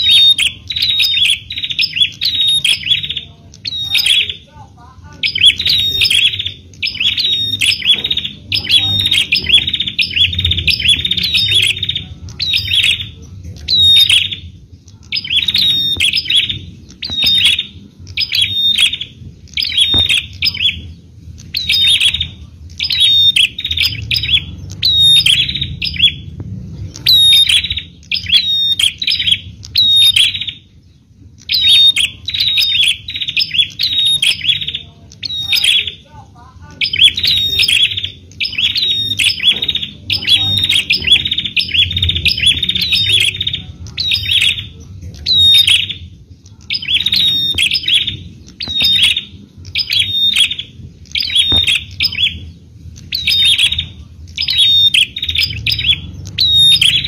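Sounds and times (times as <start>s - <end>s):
bird chirping: 0.0s - 57.0s
low background rumble: 0.0s - 57.0s.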